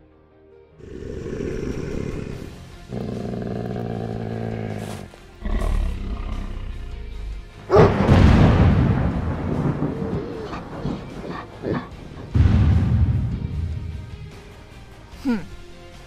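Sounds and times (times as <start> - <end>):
background music: 0.0 - 16.0
cartoon animal growling: 0.8 - 8.1, 10.1 - 12.3
cartoon animal roaring: 0.8 - 8.1, 9.9 - 12.4.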